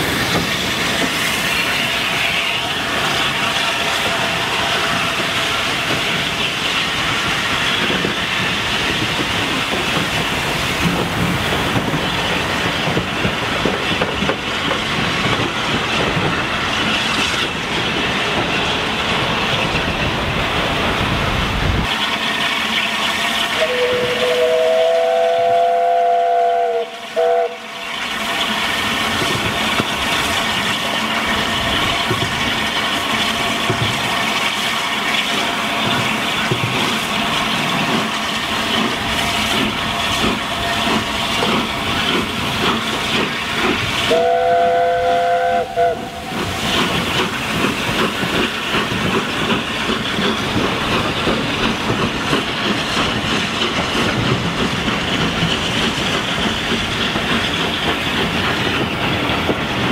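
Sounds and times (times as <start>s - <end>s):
train wheels clicking over rail joints: 0.0s - 59.9s
steam whistle two-note chord: 23.6s - 27.6s.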